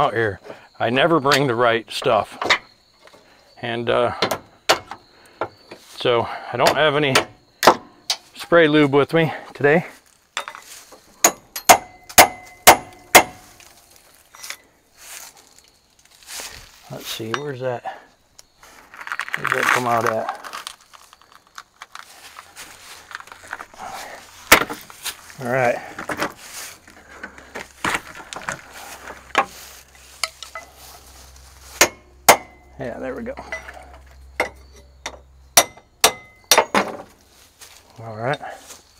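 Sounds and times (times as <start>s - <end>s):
hand tools knocking and clicking: 2.4s - 2.6s, 4.1s - 5.8s, 6.6s - 8.2s, 10.4s - 13.4s, 30.2s - 30.7s, 31.8s - 32.7s, 33.4s - 37.0s
hammer clanging on steel: 4.1s - 5.6s, 6.6s - 8.2s, 10.4s - 13.6s, 31.8s - 37.0s.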